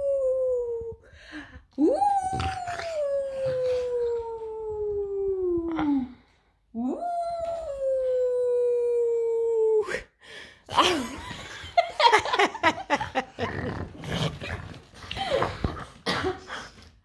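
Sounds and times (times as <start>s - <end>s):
dog grumbling and whining: 1.9s - 4.9s
woman laughing: 10.8s - 13.8s.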